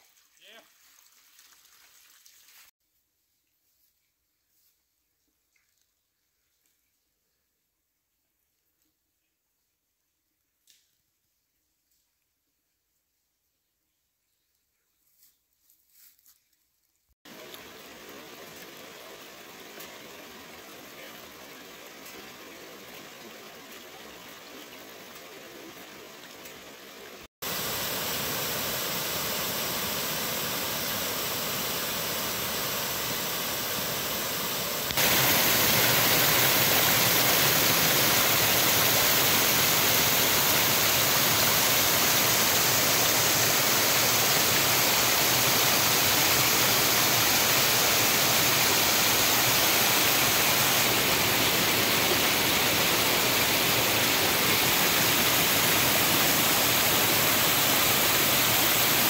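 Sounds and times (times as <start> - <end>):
creek water over rocks: 17.2 - 59.0
small waterfall cascading: 17.2 - 59.0.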